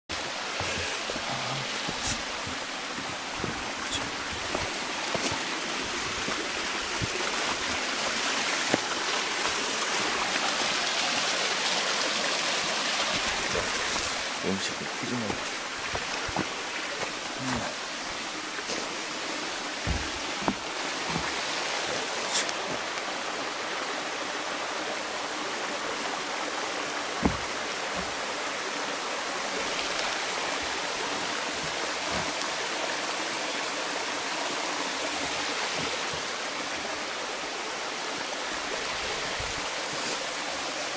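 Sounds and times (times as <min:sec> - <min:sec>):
stream running over rocks: 0:00.1 - 0:40.9
soft thumps: 0:19.8 - 0:21.4, 0:27.2 - 0:28.2.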